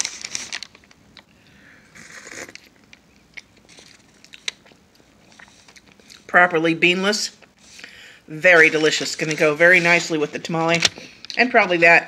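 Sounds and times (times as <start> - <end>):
lip smacks: 2.0 - 6.3.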